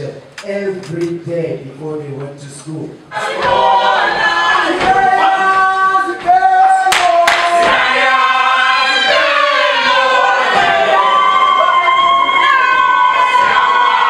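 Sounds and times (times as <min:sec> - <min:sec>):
group singing unaccompanied: 0:03.1 - 0:14.0.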